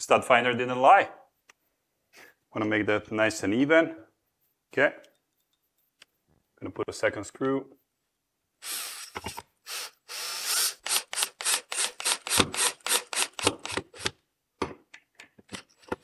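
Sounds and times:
cordless drill driving screw: 8.6s - 14.2s.

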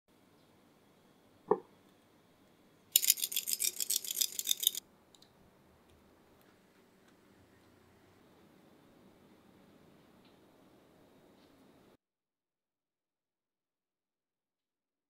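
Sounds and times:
kitchen utensils rattling: 3.0s - 4.8s.

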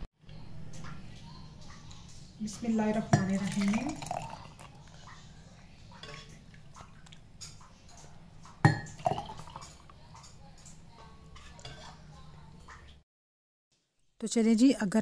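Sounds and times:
milk pouring and dripping: 2.9s - 5.3s, 6.0s - 12.9s.

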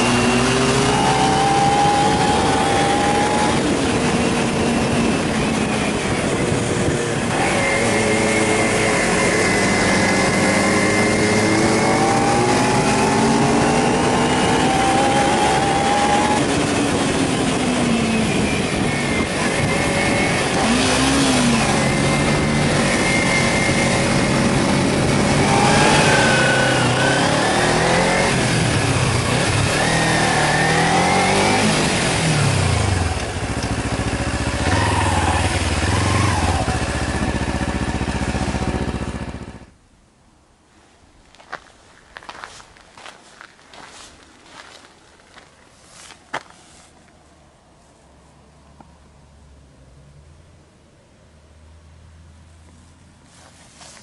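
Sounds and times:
wind rushing on microphone: 0.0s - 30.1s
motorcycle engine accelerating: 0.0s - 39.8s.

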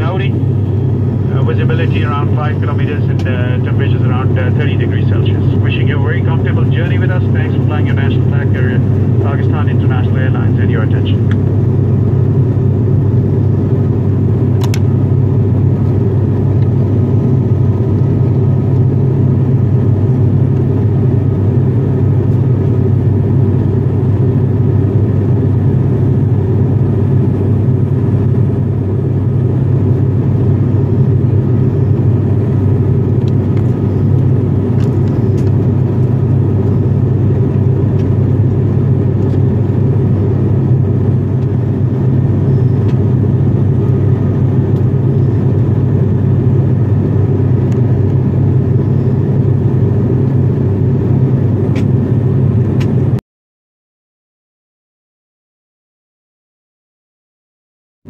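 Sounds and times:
turboprop engines droning in cabin: 0.0s - 53.2s.

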